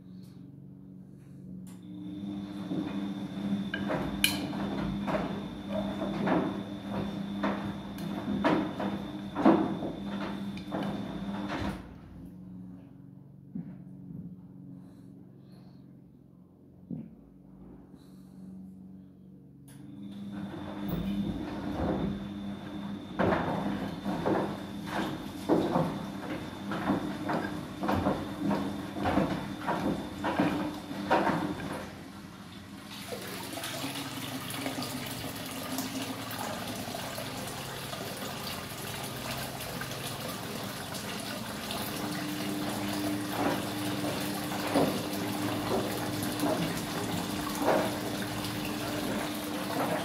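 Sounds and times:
washing machine drum tumbling: 0:02.1 - 0:11.9, 0:20.2 - 0:50.0
water rushing into drain: 0:24.0 - 0:50.0.

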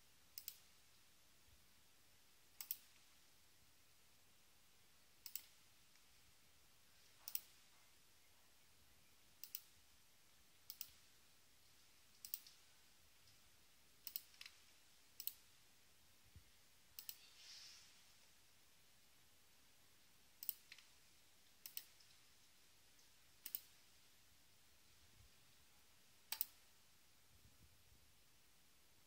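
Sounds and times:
computer mouse buttons clicking: 0:00.4 - 0:00.7, 0:02.6 - 0:03.1, 0:05.2 - 0:06.1, 0:07.1 - 0:07.6, 0:09.4 - 0:09.7, 0:10.6 - 0:11.1, 0:12.1 - 0:12.6, 0:14.0 - 0:15.5, 0:17.0 - 0:17.3, 0:20.4 - 0:20.9, 0:21.6 - 0:22.2, 0:23.4 - 0:23.8, 0:26.3 - 0:26.6.

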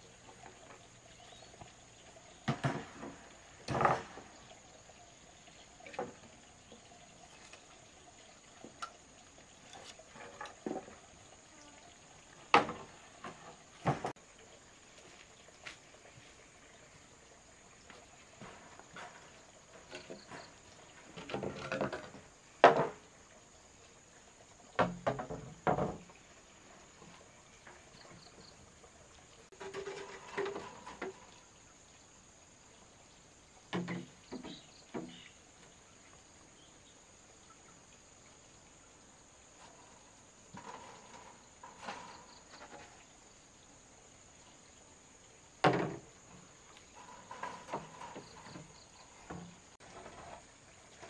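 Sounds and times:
wood knocking and clattering: 0:02.4 - 0:04.3, 0:12.5 - 0:14.2, 0:19.8 - 0:23.0, 0:24.8 - 0:26.1, 0:29.6 - 0:31.3, 0:33.7 - 0:35.2, 0:45.6 - 0:46.1, 0:47.0 - 0:50.4.

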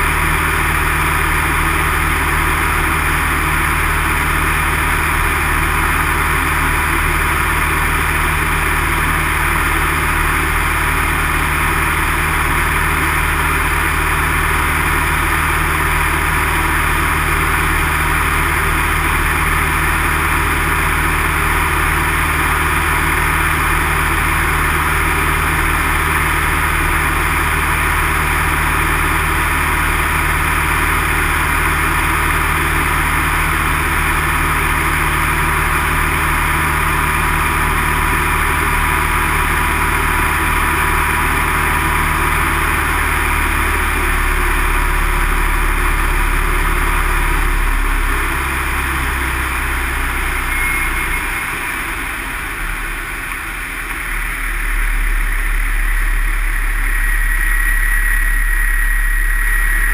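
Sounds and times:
propeller plane engine droning: 0:00.0 - 0:59.9.

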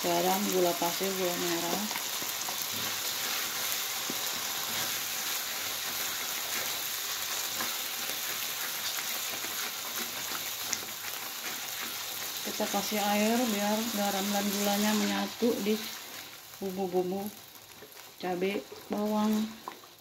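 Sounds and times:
chili paste sizzling in a wok: 0:00.0 - 0:20.0
spatula scraping a wok: 0:02.0 - 0:12.8.

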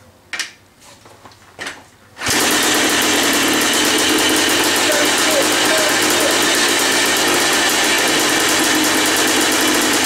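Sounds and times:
kick-starter clatter: 0:02.2 - 0:10.0
two-stroke engine running: 0:02.2 - 0:10.0.

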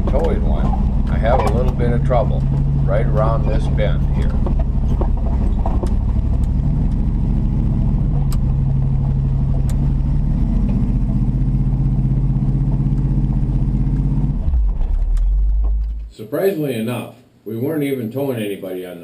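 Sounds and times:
truck engine working hard: 0:00.0 - 0:16.1.

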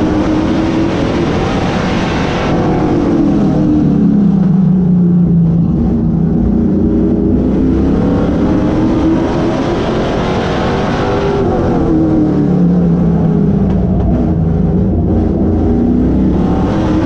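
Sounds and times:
race car engine revving: 0:00.0 - 0:17.0.

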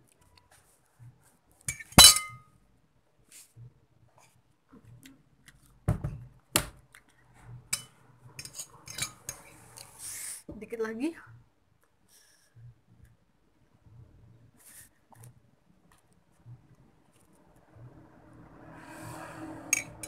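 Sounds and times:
tableware clinking: 0:01.7 - 0:02.4, 0:07.7 - 0:09.4, 0:19.7 - 0:20.0.

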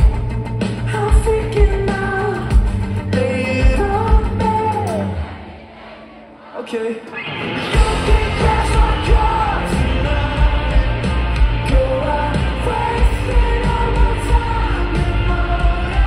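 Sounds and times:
bass guitar: 0:00.0 - 0:05.2, 0:07.6 - 0:16.0
live pop-rock band: 0:00.0 - 0:05.6, 0:07.0 - 0:16.0
lead vocals singing: 0:00.0 - 0:16.0
pounding drums: 0:07.8 - 0:16.0.

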